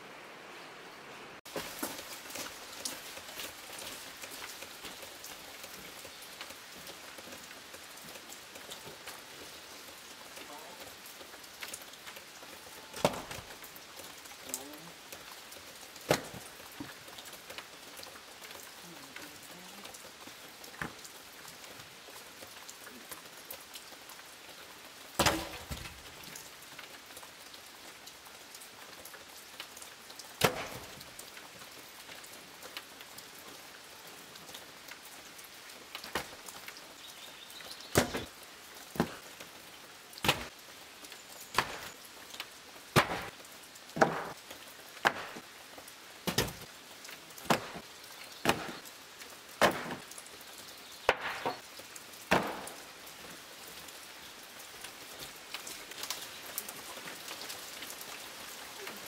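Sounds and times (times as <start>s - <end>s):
wooden planks knocking on pile: 38.0s - 38.3s, 44.0s - 44.3s, 46.3s - 46.6s, 48.4s - 48.8s.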